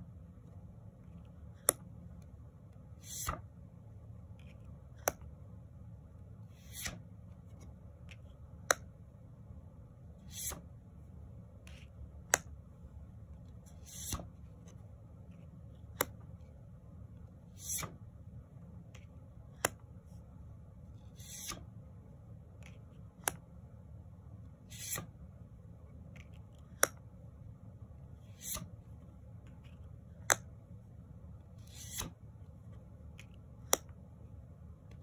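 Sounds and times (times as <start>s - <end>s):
low steady hum: 0.0s - 35.0s
card sliding swish: 3.0s - 3.4s, 6.5s - 7.0s, 10.2s - 10.7s, 13.7s - 14.8s, 17.5s - 18.0s, 21.0s - 21.7s, 24.6s - 25.2s, 28.2s - 28.8s, 31.6s - 32.2s.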